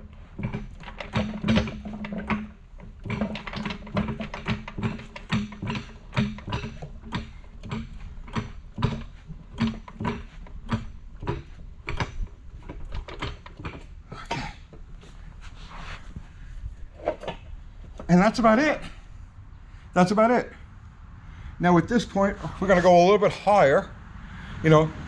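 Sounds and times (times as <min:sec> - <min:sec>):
light clicks and knocks: 0:00.0 - 0:15.2.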